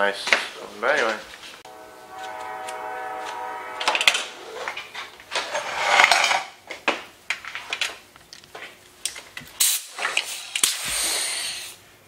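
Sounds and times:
brief air hiss: 9.6 - 11.8.

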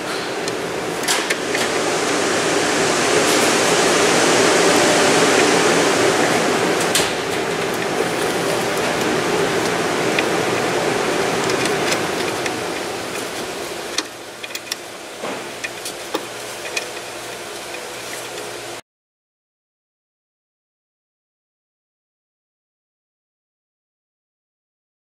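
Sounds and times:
workshop rushing noise: 0.0 - 18.8.

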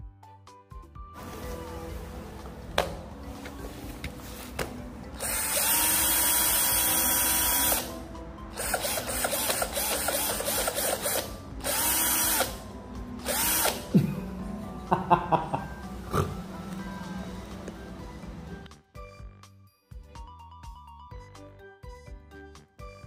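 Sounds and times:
cordless drills whirring: 5.2 - 12.6, 13.2 - 13.9.

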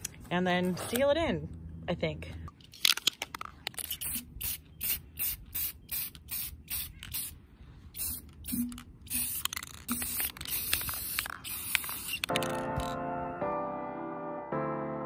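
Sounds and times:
aerosol can spraying: 3.9 - 7.4, 8.0 - 12.9.

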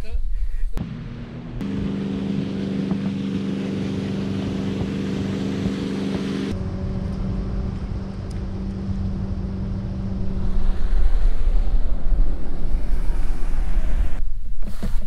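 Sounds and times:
motorboat engine passing: 0.8 - 14.2
wind on microphone: 7.6 - 15.0.

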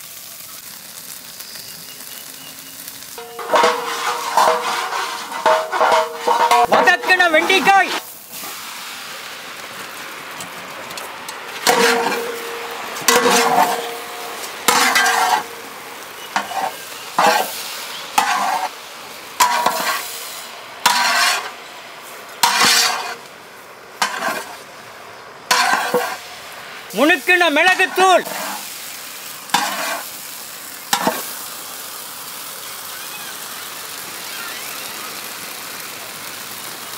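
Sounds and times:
okra sizzling: 0.0 - 36.9
metal ladle scraping a pot: 3.2 - 7.1, 11.6 - 15.6, 16.2 - 17.5, 18.2 - 18.7, 19.4 - 20.1, 20.8 - 21.6, 22.4 - 23.2, 24.0 - 24.6, 25.5 - 26.2.

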